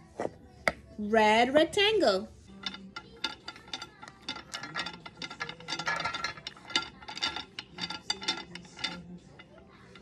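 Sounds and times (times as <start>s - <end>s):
wooden beads clacking: 2.6s - 10.0s.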